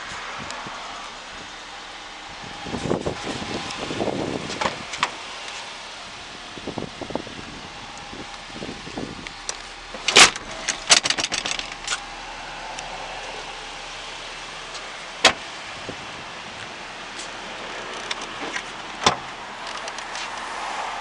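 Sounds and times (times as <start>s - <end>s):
car hardware clicks and rattles: 3.5s - 5.7s, 7.9s - 12.9s, 14.7s - 15.6s, 16.6s - 20.5s
tailgate unlatching clunk: 4.4s - 5.2s, 9.5s - 12.1s, 15.2s - 15.5s, 18.0s - 19.9s
car door slam: 9.9s - 12.0s, 15.2s - 15.5s, 18.4s - 19.3s.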